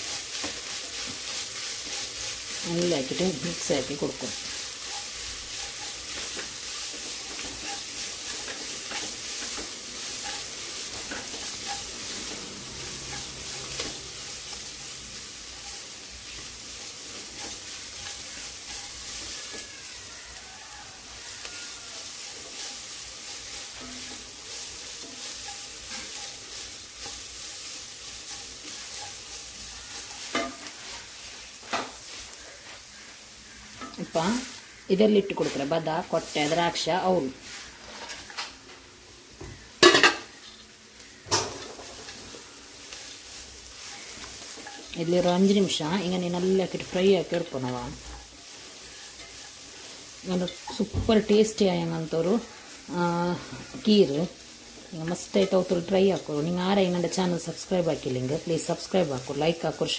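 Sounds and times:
food sizzling in a pot: 0:00.0 - 0:59.9
spatula scraping a pot: 0:04.2 - 0:14.7, 0:22.0 - 0:31.1, 0:42.9 - 0:45.3.

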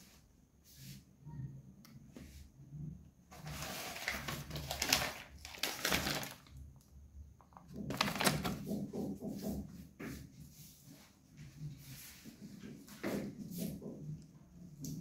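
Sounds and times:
plastic packaging crinkling: 0:03.3 - 0:08.7.

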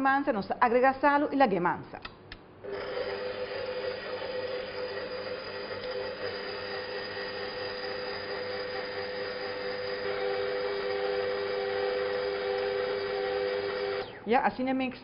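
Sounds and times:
stand mixer motor hum: 0:02.7 - 0:14.2.

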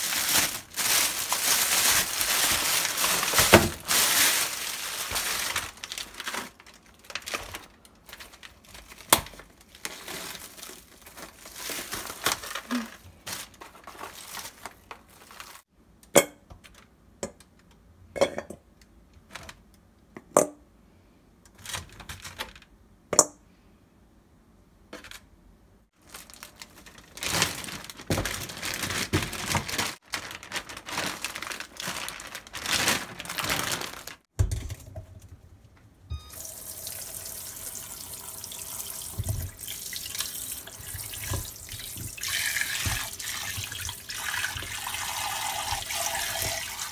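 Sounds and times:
plastic wrap crinkling: 0:00.0 - 0:15.7, 0:26.0 - 0:34.3, 0:36.8 - 0:46.9
tap water running into bowl: 0:36.3 - 0:46.9.

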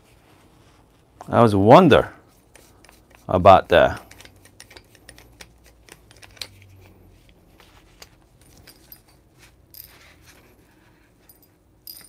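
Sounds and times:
metal part rustling: 0:07.6 - 0:12.0.

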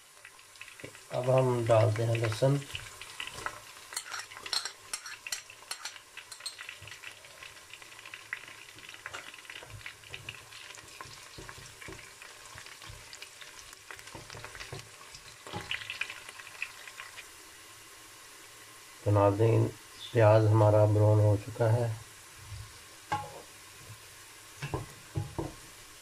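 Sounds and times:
onions sizzling in hot oil: 0:00.0 - 0:26.0
spatula stirring in a pot: 0:02.3 - 0:16.2.

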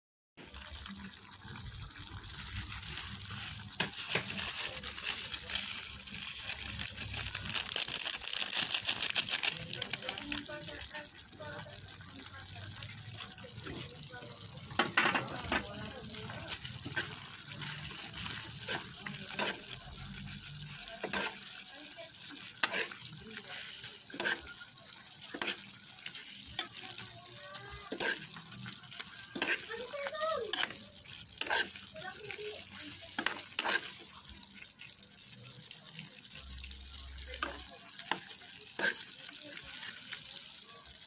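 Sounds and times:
stew bubbling in a pot: 0:00.4 - 0:41.0
spoon scraping a pot: 0:14.8 - 0:19.8, 0:20.7 - 0:21.6, 0:22.4 - 0:27.1, 0:27.9 - 0:29.9, 0:30.5 - 0:31.9, 0:33.1 - 0:34.1, 0:37.4 - 0:40.0.

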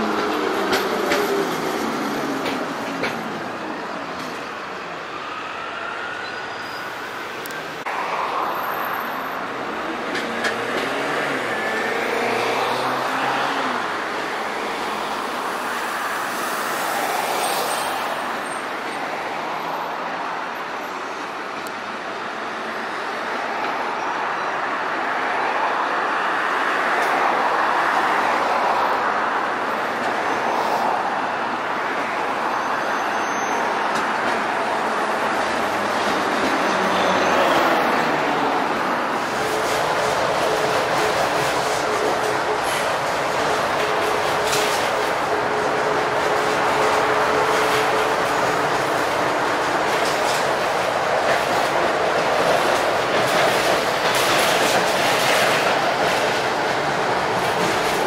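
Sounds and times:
street traffic noise: 0:00.0 - 0:58.0
tram running on rails: 0:00.0 - 0:58.0.

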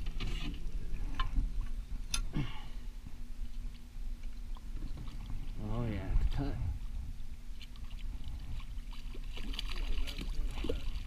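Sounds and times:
fishing gear clicking in a metal boat: 0:00.0 - 0:02.3
outboard motor humming: 0:00.0 - 0:11.0.

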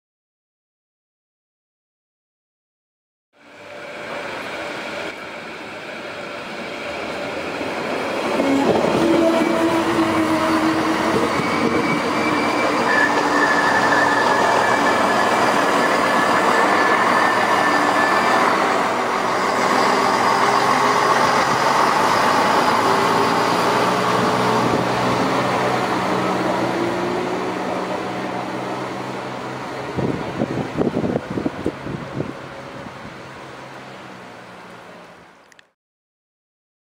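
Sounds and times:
diesel railcar engine: 0:03.4 - 0:35.7.

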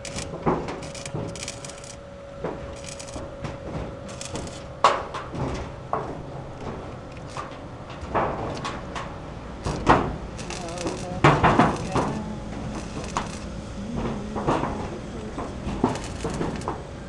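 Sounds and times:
metal scraping: 0:00.0 - 0:05.8, 0:06.6 - 0:08.9, 0:09.6 - 0:16.8
metal sheets clanking: 0:00.0 - 0:16.8.

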